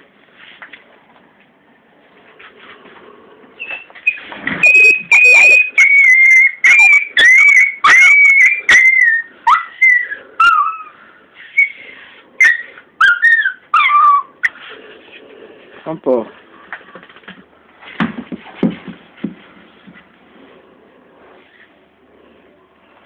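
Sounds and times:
puppy whining: 3.5 - 15.1
sharp knocks and bumps: 17.0 - 20.1.

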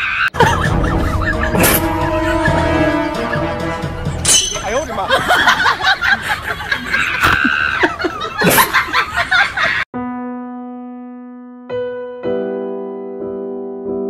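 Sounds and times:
sound effects with gliding pitches: 0.7 - 4.9
piano chord ringing: 0.9 - 5.0.

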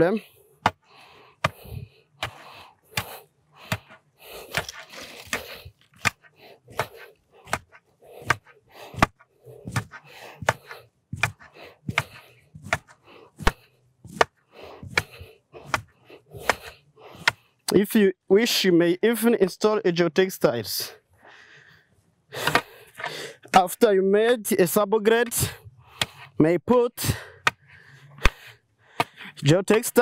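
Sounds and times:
tamping pole knocking soil: 0.6 - 17.8, 29.0 - 30.0.

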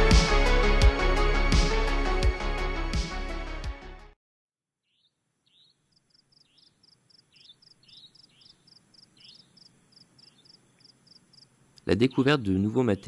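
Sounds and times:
crickets chirping: 5.6 - 11.6.

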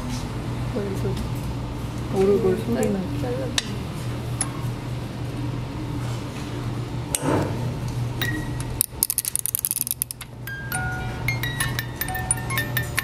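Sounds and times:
ratcheting clicks of winding: 8.8 - 10.3
music box plucked metal notes: 10.0 - 13.0.

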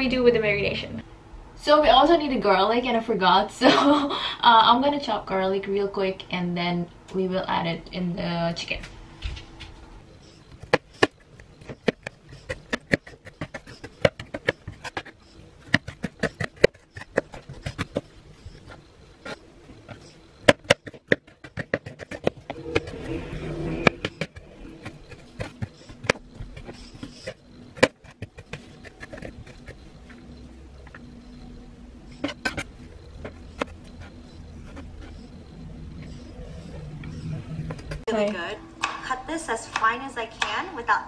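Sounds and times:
knife chopping on plastic board: 10.5 - 29.8.

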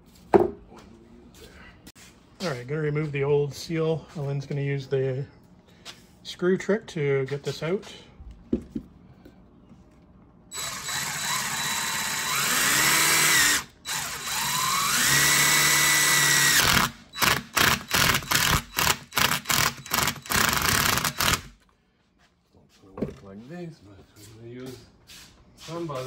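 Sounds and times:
cordless drill motor spinning: 10.5 - 21.6
drill trigger bursts: 10.5 - 21.6.

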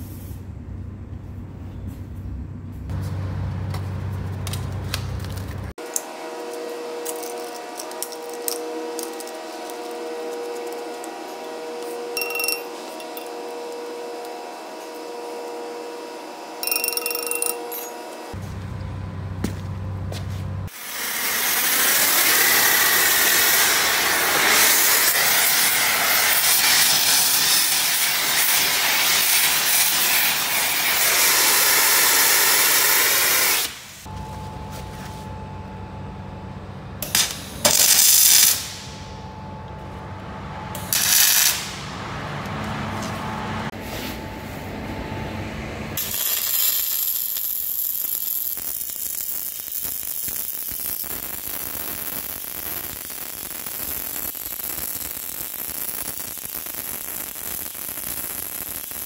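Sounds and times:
welding arc crackling: 4.4 - 15.5, 20.7 - 34.1, 37.0 - 39.0, 40.8 - 42.0, 46.0 - 59.0
gas torch hissing: 20.7 - 34.1, 40.8 - 41.9, 46.0 - 59.0.

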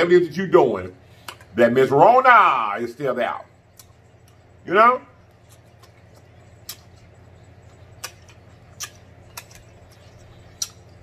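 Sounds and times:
man chewing with wet smacks: 1.2 - 1.6, 3.6 - 4.6, 5.2 - 11.0.

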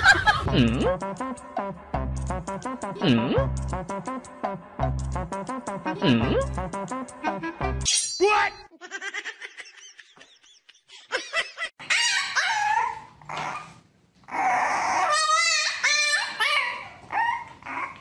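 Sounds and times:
puppy whining and yelping: 11.8 - 18.0.

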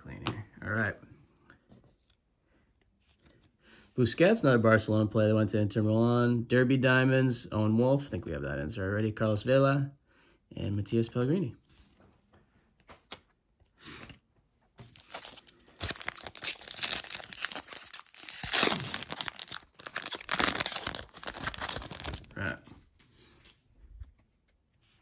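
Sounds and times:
wrapper tearing and crinkling: 14.8 - 22.5.

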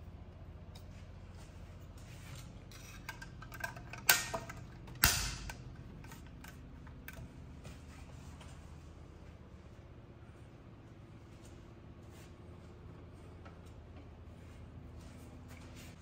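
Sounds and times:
hard objects clicking and handled: 2.3 - 7.4.

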